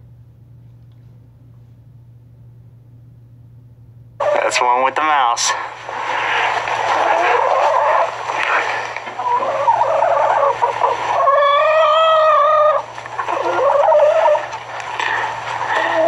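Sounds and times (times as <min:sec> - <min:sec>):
chickens squawking: 0:04.2 - 0:04.6, 0:05.7 - 0:16.0.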